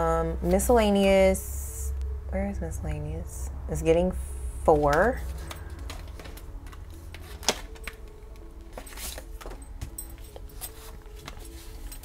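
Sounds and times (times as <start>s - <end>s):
banknotes rustling: 4.7s - 12.0s.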